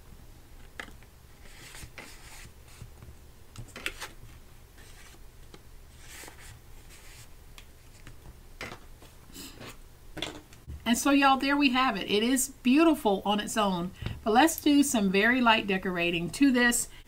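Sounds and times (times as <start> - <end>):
card stack scrapes and taps: 0.7 - 9.2
paper and card rustling: 1.3 - 3.0, 3.6 - 9.2.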